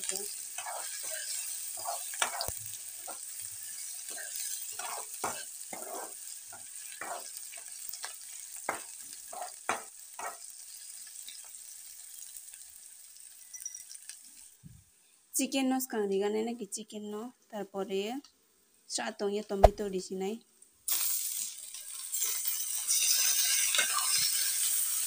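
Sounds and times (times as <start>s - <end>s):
onions sizzling in oil: 0.0s - 14.6s, 20.8s - 25.0s
spoon scraping and knocking pan: 0.6s - 3.3s, 4.0s - 10.5s.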